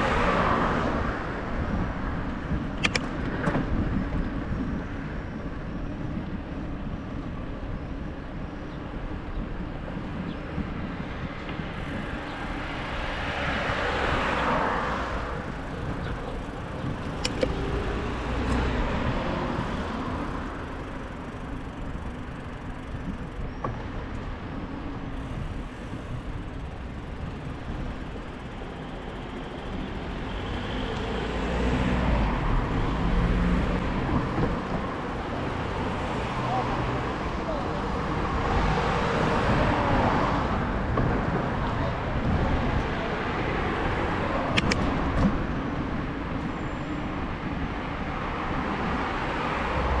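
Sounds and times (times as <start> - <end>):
cars passing: 0.0 - 8.1, 9.8 - 50.0
low traffic rumble: 0.0 - 50.0
sharp click: 2.8 - 3.1, 44.5 - 44.9.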